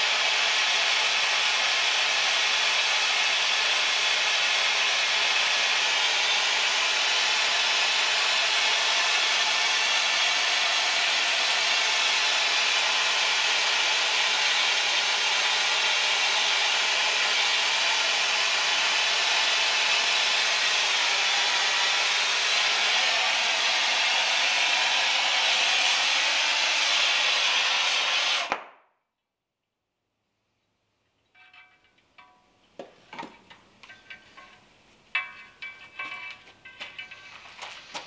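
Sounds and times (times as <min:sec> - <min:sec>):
torch flame hissing: 0:19.4 - 0:28.5.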